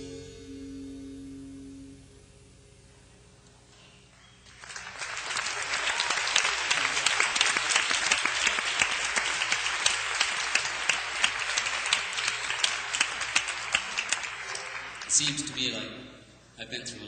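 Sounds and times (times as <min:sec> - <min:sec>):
audience applauding: 0:04.1 - 0:15.9.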